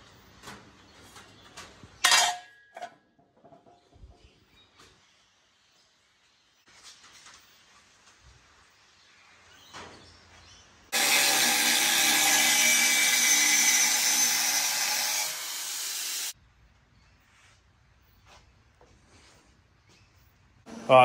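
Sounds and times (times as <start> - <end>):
angle grinder cutting steel: 11.0 - 16.4.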